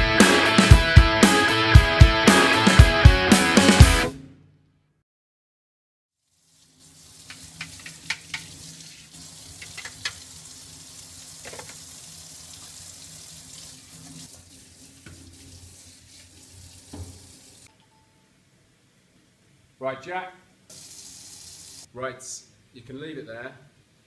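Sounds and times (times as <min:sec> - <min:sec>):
brush scrubbing palettes: 0:07.2 - 0:10.2
tap running into sink: 0:07.2 - 0:10.3, 0:11.4 - 0:11.9, 0:14.0 - 0:15.4, 0:16.2 - 0:17.4.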